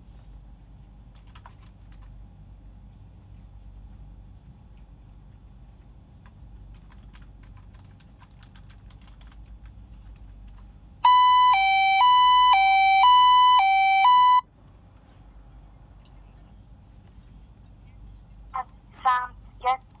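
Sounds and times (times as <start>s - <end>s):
keyboard clicking: 1.1s - 2.1s, 6.7s - 10.6s
two-tone alarm siren: 11.0s - 14.5s.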